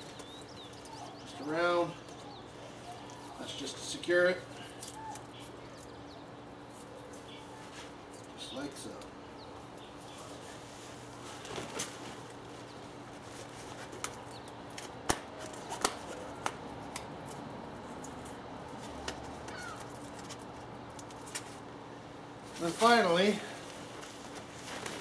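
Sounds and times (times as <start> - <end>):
fabric cover rustling and flapping: 10.3 - 14.2, 22.4 - 25.0.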